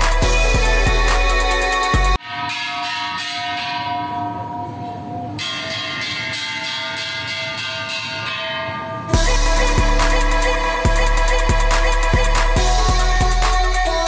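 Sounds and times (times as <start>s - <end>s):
bell chimes ringing: 2.2s - 10.8s.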